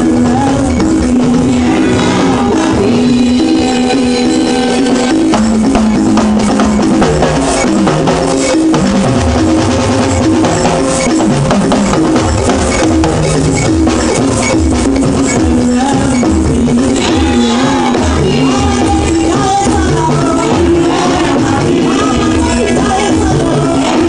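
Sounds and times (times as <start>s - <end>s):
bass line: 0.0s - 24.0s
gospel band music: 0.0s - 24.0s
hand percussion and drums: 0.0s - 24.0s.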